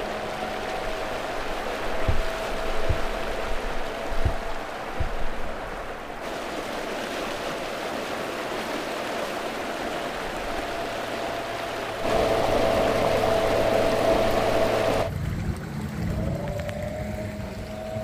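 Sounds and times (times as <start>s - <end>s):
electric outboard motor whine: 0.0s - 6.3s, 9.6s - 15.1s
low hum: 0.0s - 6.9s, 9.6s - 15.1s
water rushing and splashing: 0.0s - 18.0s.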